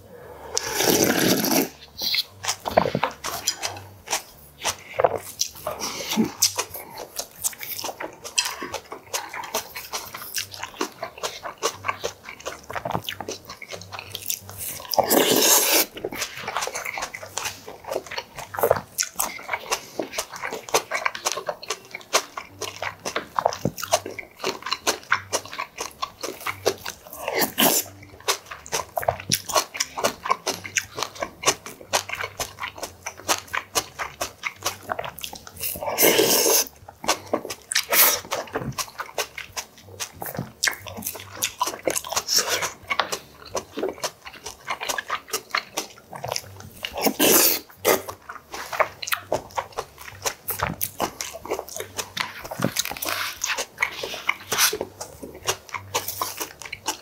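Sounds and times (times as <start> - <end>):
wet chewing with mouth clicks: 0.3 - 57.0
loud slurp: 0.5 - 3.0, 15.0 - 16.4, 35.6 - 36.7.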